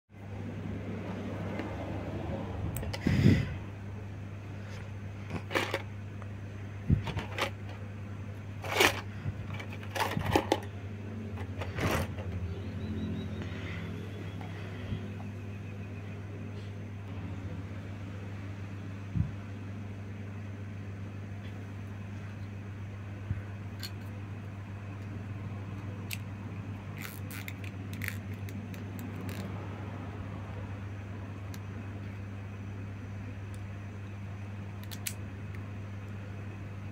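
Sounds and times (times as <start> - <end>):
steady low hum: 0.1 - 36.9
plastic parts clicking together: 34.8 - 35.2.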